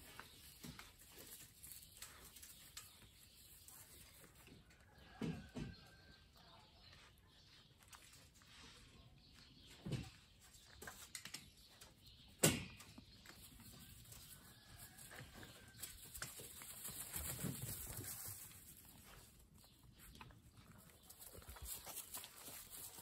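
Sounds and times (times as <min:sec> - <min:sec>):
puppies rustling and pattering: 0:00.0 - 0:04.7, 0:13.0 - 0:23.0.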